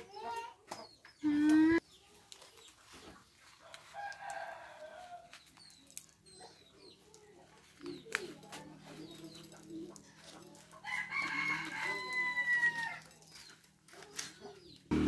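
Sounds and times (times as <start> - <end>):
rooster crowing: 10.8 - 13.0.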